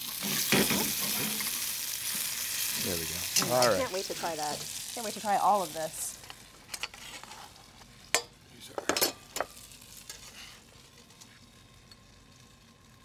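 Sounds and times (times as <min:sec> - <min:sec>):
metal spatula scraping frying pan: 0:10.0 - 0:10.7.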